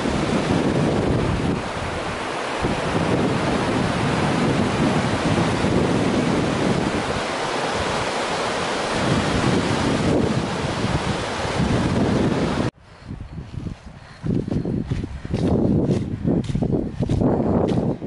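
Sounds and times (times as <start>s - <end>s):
river rushing over rapids: 0.0s - 12.7s
wind buffeting microphone: 0.0s - 18.0s.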